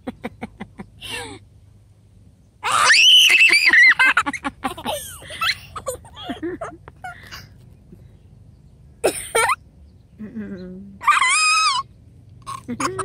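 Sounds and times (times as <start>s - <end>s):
child squealing: 2.6s - 4.0s, 11.0s - 11.9s.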